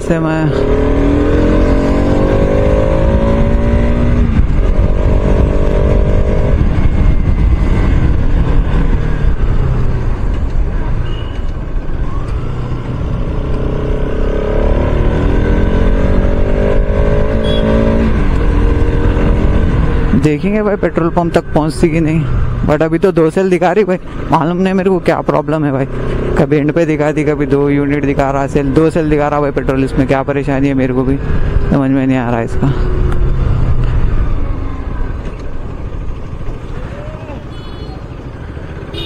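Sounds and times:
motorcycle engine accelerating: 0.0s - 11.0s, 11.8s - 22.7s
wind rumble on microphone: 1.0s - 10.9s.

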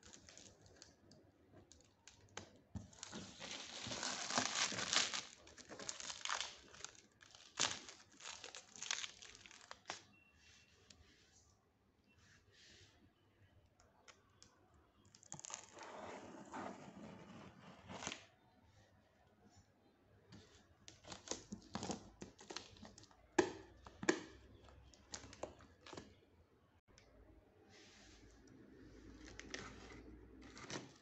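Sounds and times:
plastic wrap rustling: 0.0s - 1.0s, 1.7s - 10.1s
plastic wrap crackling: 0.0s - 10.1s, 20.9s - 26.2s.

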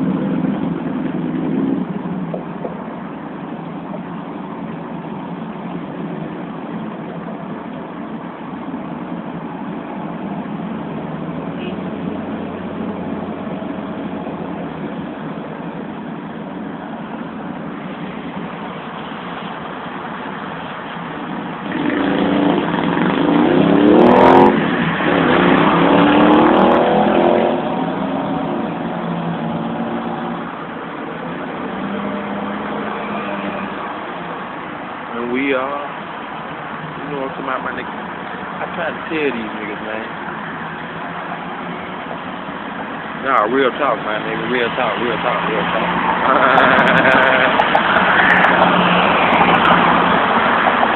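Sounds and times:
steady vehicle noise: 0.0s - 50.9s
vehicle engine revving: 21.0s - 34.1s, 41.3s - 50.9s.

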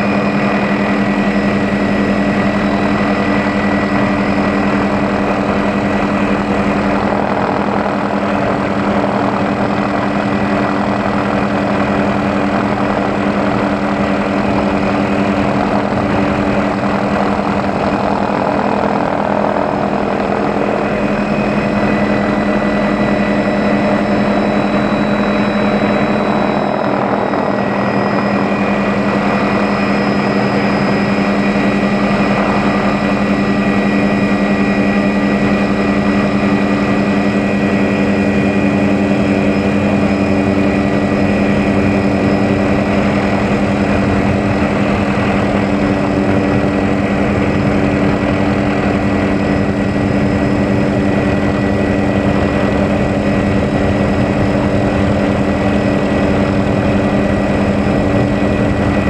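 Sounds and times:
helicopter engine and rotor drone: 0.0s - 59.0s.

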